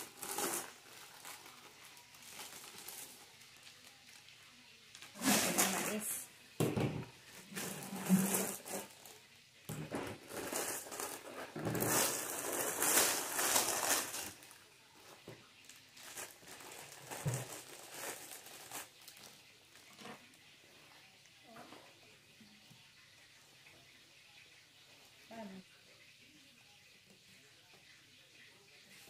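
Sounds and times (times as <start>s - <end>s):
plastic bags and bubble wrap crinkling: 0.0s - 20.5s.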